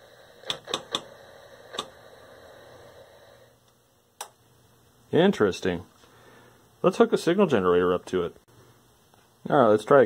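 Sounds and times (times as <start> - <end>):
television hiss and hum: 0.0 - 10.0
sharp clicks: 0.4 - 1.1.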